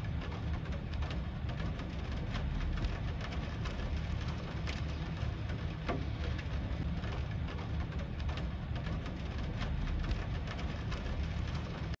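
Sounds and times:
rain pattering: 0.0 - 12.0.

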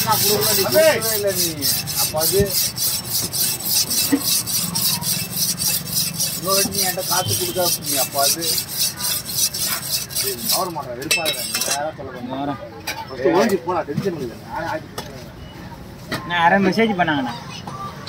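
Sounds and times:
knife scraping on sharpening stone: 0.0 - 11.8.

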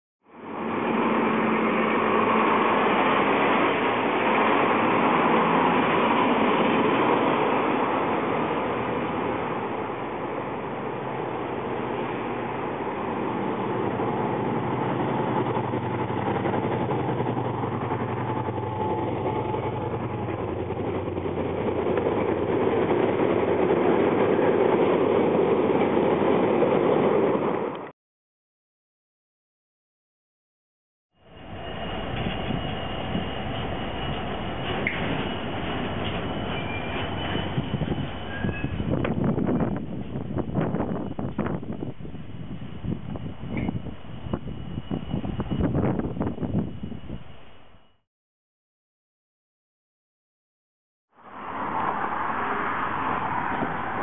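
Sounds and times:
diesel locomotive passing: 0.2 - 27.9, 31.2 - 48.0, 51.1 - 54.0
train wagons rolling: 0.9 - 27.9, 31.4 - 47.5.

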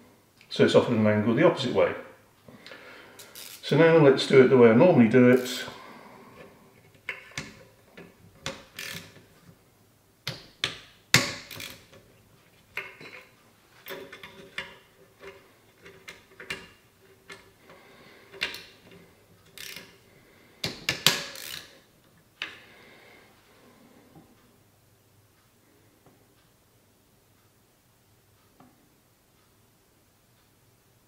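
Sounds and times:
metallic clicks of wrench: 7.1 - 9.2, 10.3 - 12.0, 19.4 - 20.0, 20.6 - 21.7
tool handling: 10.2 - 17.5.

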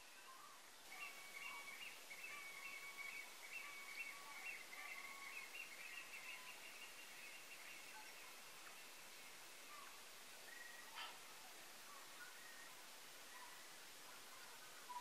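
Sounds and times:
faint birdsong: 0.0 - 15.0
soft steady hiss: 0.0 - 15.0.

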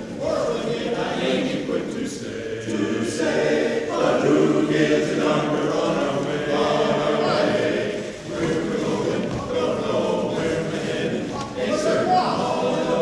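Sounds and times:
men's chorus singing a cappella: 0.0 - 13.0.

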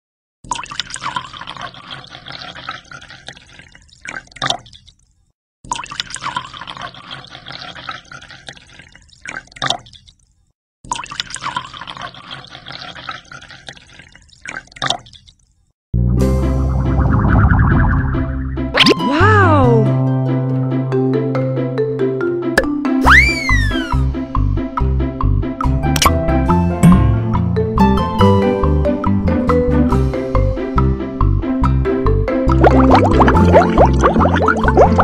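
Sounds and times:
water pouring into aquarium: 0.4 - 15.7, 16.9 - 19.0, 32.5 - 35.0
music: 16.0 - 35.0.

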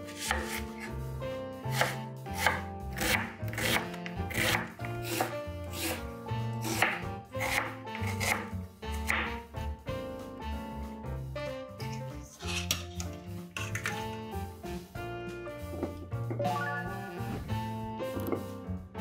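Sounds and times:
knife chopping on wooden board: 0.1 - 0.9, 1.7 - 6.0, 6.6 - 9.4.

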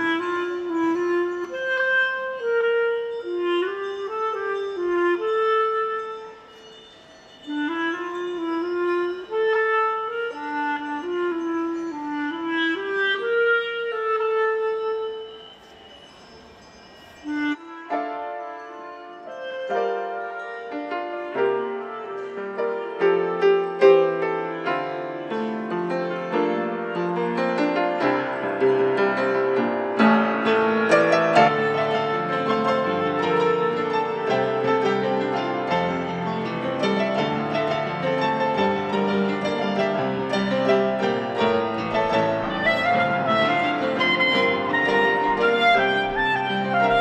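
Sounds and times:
upright piano melody: 17.8 - 47.0.

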